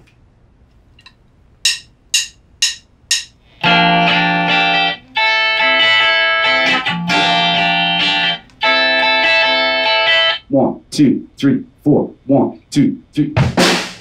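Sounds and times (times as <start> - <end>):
drumstick count-in clicks: 1.6 - 3.4
electric guitar strumming chords: 3.5 - 10.4.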